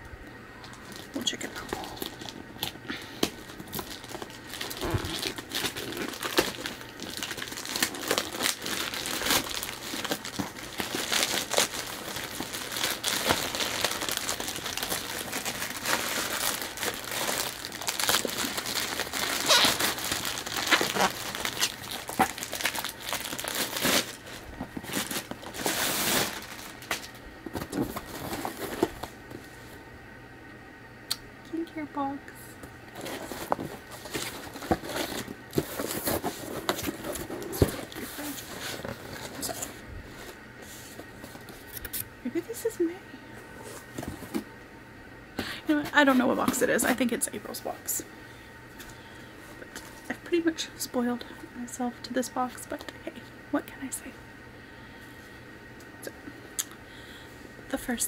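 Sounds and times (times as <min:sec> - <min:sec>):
packaging crinkling and crackling: 0:00.6 - 0:29.4, 0:32.9 - 0:42.0.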